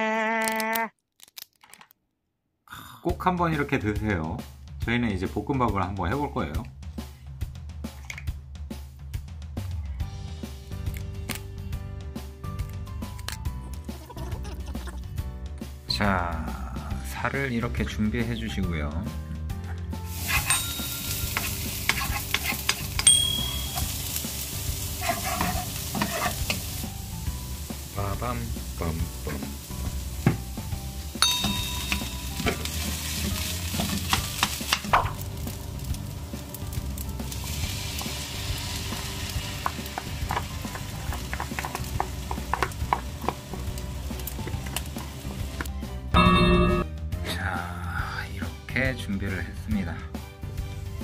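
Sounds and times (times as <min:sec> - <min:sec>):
carrots sizzling in a wok: 0:20.0 - 0:45.7
wooden spatula scraping a pan: 0:20.1 - 0:23.0, 0:24.8 - 0:26.8.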